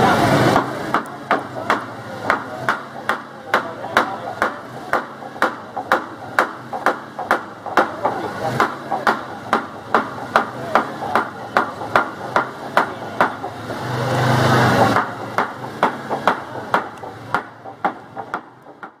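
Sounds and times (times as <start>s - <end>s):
hammer blows: 0.0s - 19.0s.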